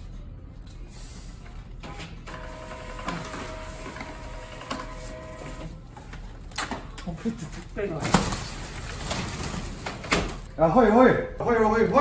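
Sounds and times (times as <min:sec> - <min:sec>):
label printer motor whine: 0:02.3 - 0:05.7.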